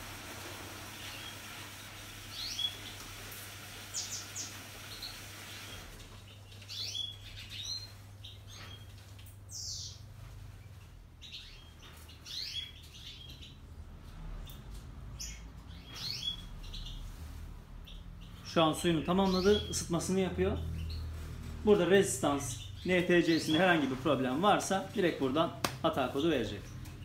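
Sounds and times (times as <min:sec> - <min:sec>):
washing machine filling hum: 0:00.0 - 0:16.2
budgerigars chirping: 0:04.0 - 0:08.9, 0:11.2 - 0:13.6, 0:15.2 - 0:17.2, 0:17.8 - 0:25.4.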